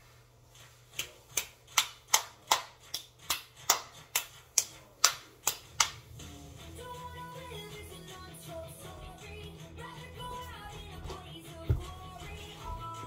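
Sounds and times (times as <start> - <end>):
faint music from speaker: 0.0 - 13.0
hand claps: 1.0 - 6.0.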